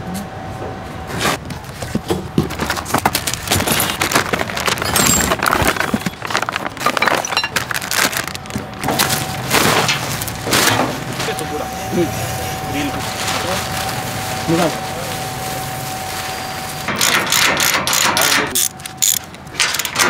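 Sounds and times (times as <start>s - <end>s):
plastic packaging crinkling: 1.8s - 16.9s.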